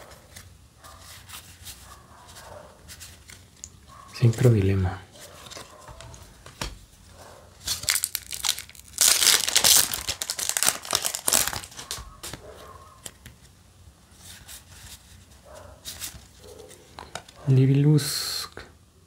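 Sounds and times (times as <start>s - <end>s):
cards rustling: 0.0s - 13.6s, 14.2s - 17.8s
foil wrapper tearing and crinkling: 7.6s - 12.4s.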